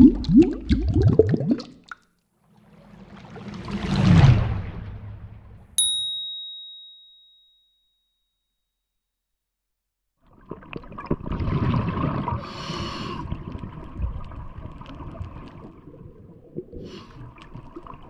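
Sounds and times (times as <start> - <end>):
exhaled bubbles rumbling: 0.0 - 5.6, 10.2 - 18.0
hissing inhale through regulator: 12.4 - 13.4, 16.8 - 17.3
crackle of small clicks: 13.5 - 15.8.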